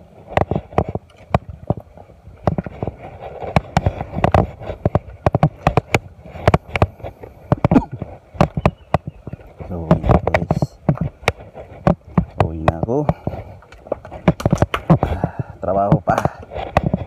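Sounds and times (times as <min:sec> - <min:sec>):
footsteps on soft mud: 0:00.0 - 0:17.0.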